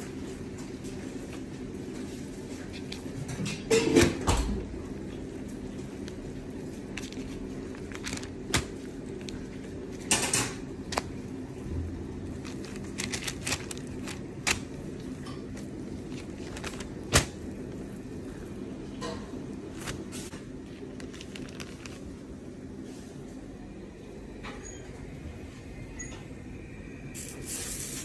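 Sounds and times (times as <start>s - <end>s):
steady low hum: 0.0s - 28.0s
parchment paper rustling and crinkling: 0.3s - 3.4s, 4.3s - 18.4s, 19.7s - 23.0s.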